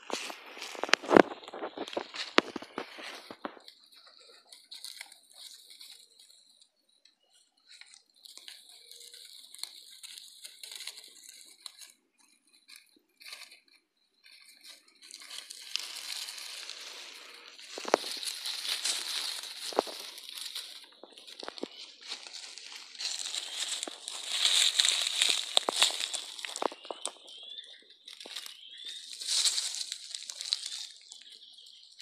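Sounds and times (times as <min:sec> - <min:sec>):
sharp crunch: 0:00.0 - 0:03.7, 0:14.6 - 0:27.4
dry leaves rustling: 0:00.0 - 0:06.6, 0:07.3 - 0:32.0.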